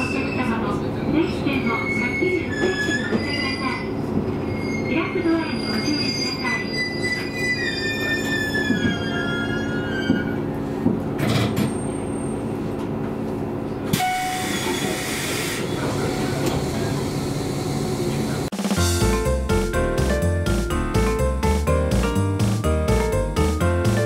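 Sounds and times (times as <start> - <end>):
train brakes squealing: 0.0 - 10.8, 11.6 - 12.6, 13.9 - 17.4.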